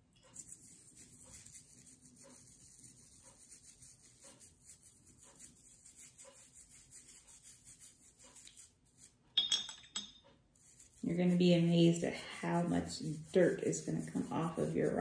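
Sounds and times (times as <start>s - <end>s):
toothbrush scrubbing rock: 0.2s - 9.2s, 10.6s - 15.0s.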